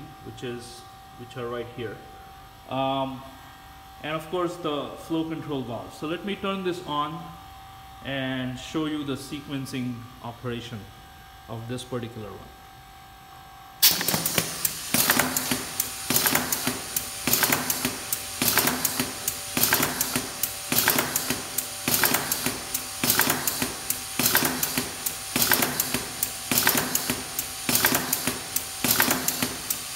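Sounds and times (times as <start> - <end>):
pneumatic piston clacking: 13.8 - 29.9.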